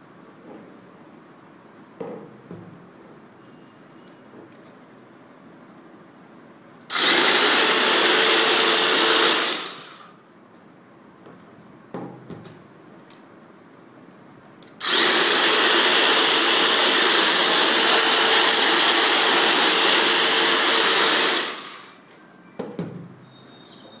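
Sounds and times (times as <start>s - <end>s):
electric hedge trimmer buzzing: 6.9s - 10.1s, 14.8s - 21.9s.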